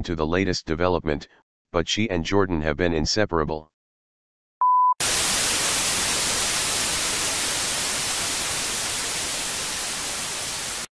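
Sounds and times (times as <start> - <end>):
static hiss: 5.0 - 10.9.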